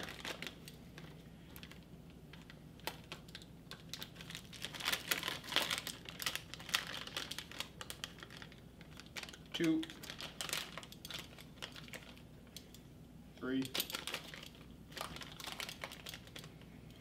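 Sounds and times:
plastic pouch crinkling: 0:00.0 - 0:12.3, 0:13.7 - 0:17.0.

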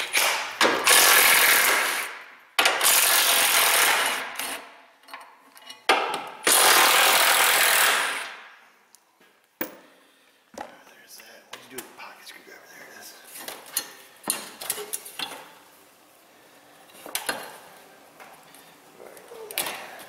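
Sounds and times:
impact wrench hammering bolts: 0:00.0 - 0:08.2.

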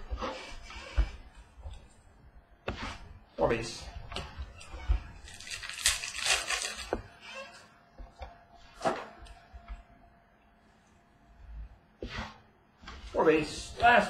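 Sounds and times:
cards rustling and flipping: 0:05.2 - 0:07.1.

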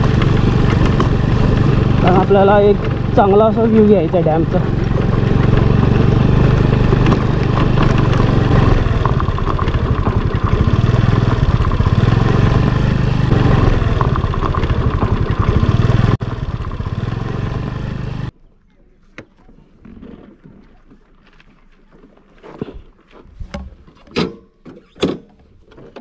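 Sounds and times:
rattling over gravel bumps: 0:00.0 - 0:18.3
scooter engine running: 0:00.0 - 0:18.3.

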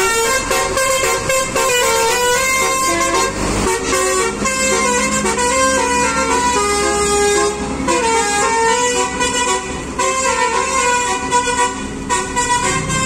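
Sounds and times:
multi-tone horn playing a melody: 0:00.0 - 0:13.0.

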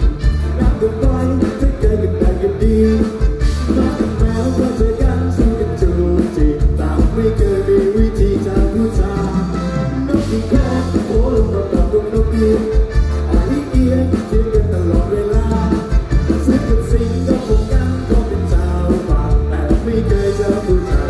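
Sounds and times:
loud amplified music: 0:00.0 - 0:21.0
man singing into microphone: 0:00.0 - 0:21.0.

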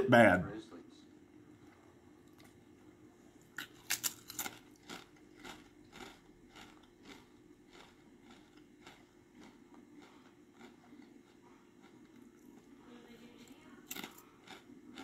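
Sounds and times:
chewing: 0:01.6 - 0:02.6, 0:03.3 - 0:15.0
biting into crunchy food: 0:03.4 - 0:12.8, 0:13.8 - 0:15.0.

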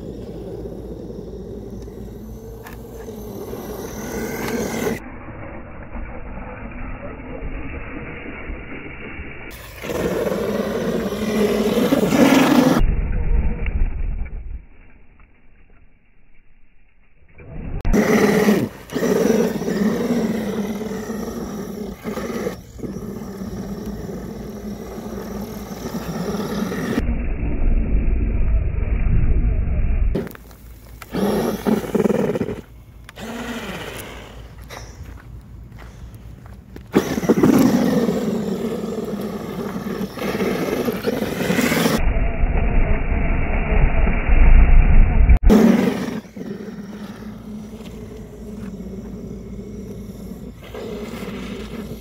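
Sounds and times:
rc truck electric motor whining: 0:00.0 - 0:05.0, 0:17.9 - 0:27.0, 0:31.0 - 0:34.9, 0:37.0 - 0:42.0
tyres spinning in snow: 0:00.0 - 0:05.1, 0:09.5 - 0:13.5, 0:17.5 - 0:27.0, 0:36.8 - 0:42.0, 0:45.5 - 0:52.0
heavy low rumble: 0:20.5 - 0:30.4, 0:40.9 - 0:50.7.

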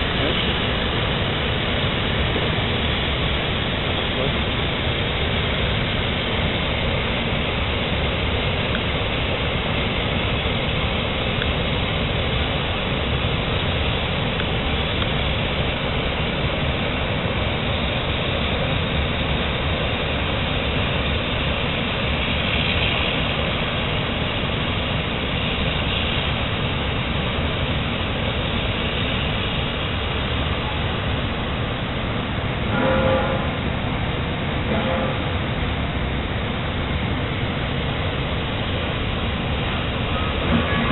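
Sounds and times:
gas cutting torches hissing: 0:00.0 - 0:31.8.

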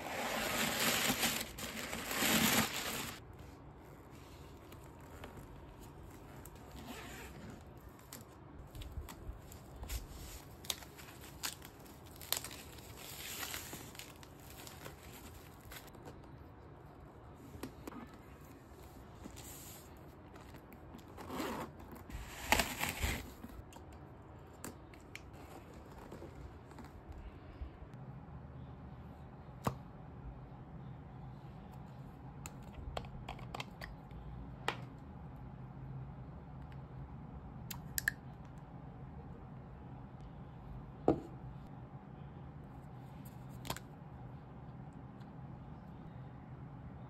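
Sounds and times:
packing paper crinkling: 0:00.0 - 0:03.2, 0:08.0 - 0:16.0.

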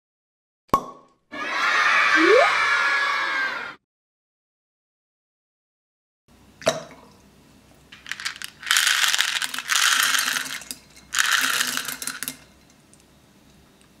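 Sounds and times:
beads pouring into water: 0:08.0 - 0:12.4.

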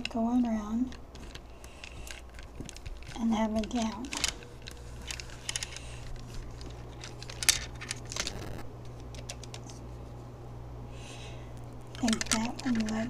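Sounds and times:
beads and chain rattling: 0:00.0 - 0:08.4, 0:11.8 - 0:13.0
steady low hum: 0:00.0 - 0:13.0.

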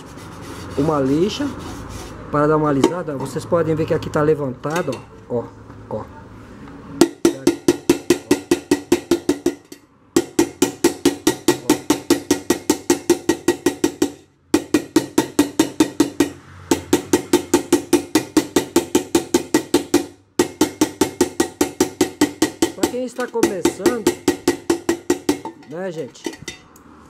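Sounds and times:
hammer striking metal: 0:07.0 - 0:26.7.

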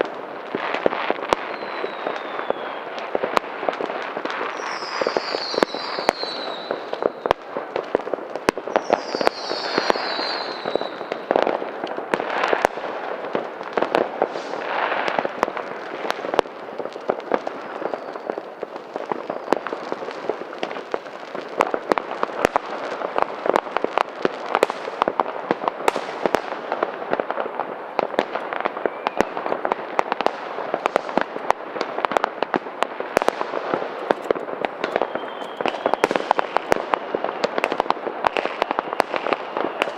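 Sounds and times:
firecrackers banging and crackling: 0:00.0 - 0:39.9
falling firework whistle: 0:00.8 - 0:03.2, 0:04.2 - 0:07.4, 0:08.6 - 0:12.9, 0:13.8 - 0:15.4, 0:17.3 - 0:22.9, 0:28.4 - 0:31.3, 0:33.2 - 0:39.9.

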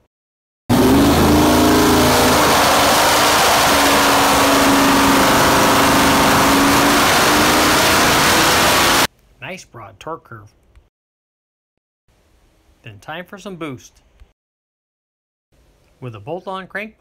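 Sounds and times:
loud engine running: 0:00.7 - 0:09.1.

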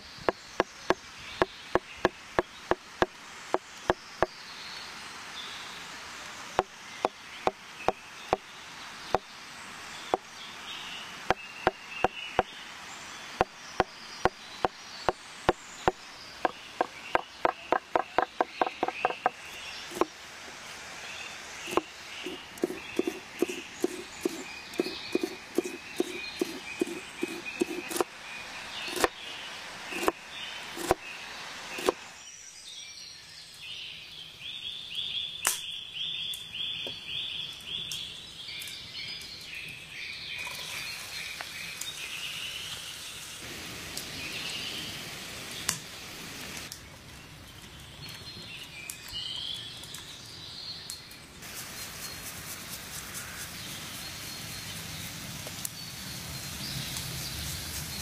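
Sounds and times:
birds chirping: 0:00.0 - 0:58.0
knife cutting on wooden board: 0:19.9 - 0:20.1, 0:21.7 - 0:28.1, 0:28.9 - 0:29.1, 0:29.9 - 0:30.2, 0:30.8 - 0:31.0, 0:31.8 - 0:32.0.

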